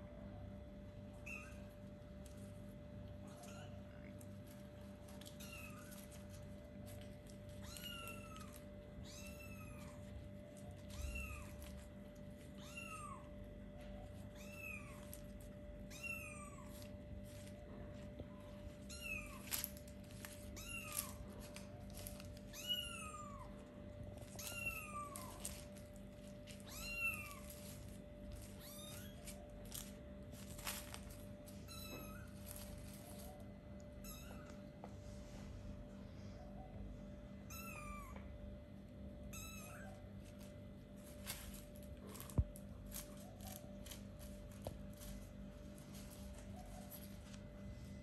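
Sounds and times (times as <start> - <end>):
kitten meowing: 1.1 - 1.8, 3.2 - 4.2, 5.2 - 6.4, 7.5 - 13.4, 14.1 - 17.4, 18.3 - 34.7, 37.5 - 38.3, 39.3 - 40.1.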